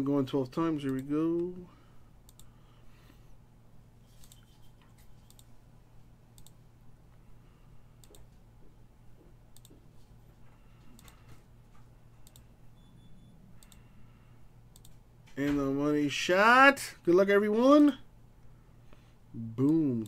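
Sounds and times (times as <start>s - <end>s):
low hum: 0.0s - 16.2s
computer mouse clicking: 2.3s - 2.5s, 4.1s - 5.5s, 6.4s - 6.6s, 8.0s - 8.3s, 9.5s - 9.8s, 10.9s - 11.4s, 12.2s - 12.5s, 13.6s - 13.9s, 14.7s - 15.0s.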